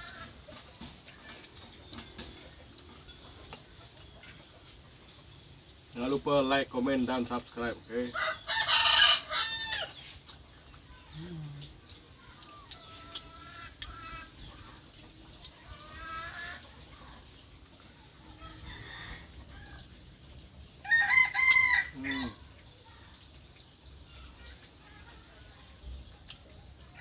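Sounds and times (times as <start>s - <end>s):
roosters crowing: 0.0s - 0.5s, 8.1s - 10.2s, 18.2s - 22.6s.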